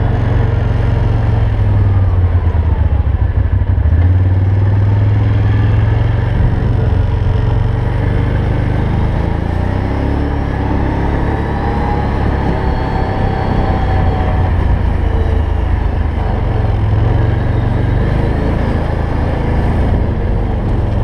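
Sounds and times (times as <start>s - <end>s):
quad engine rumbling: 0.0s - 21.0s.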